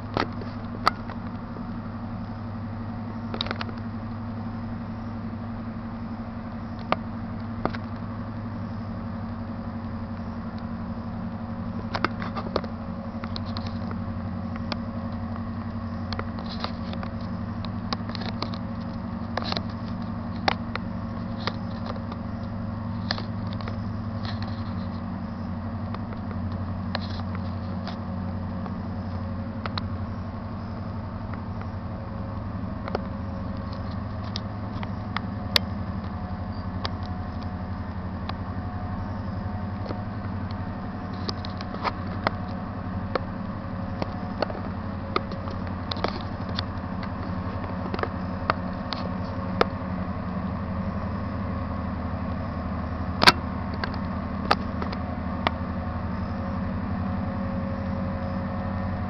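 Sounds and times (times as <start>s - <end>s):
low engine drone: 0.0s - 59.0s
sharp clicks and ticks: 29.6s - 29.9s.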